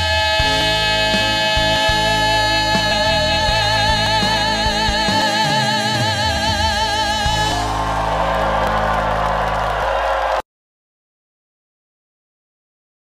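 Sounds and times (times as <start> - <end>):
man singing with vibrato: 0.0 - 7.8
backing band: 0.0 - 10.4
audience cheering and applause: 5.1 - 10.5.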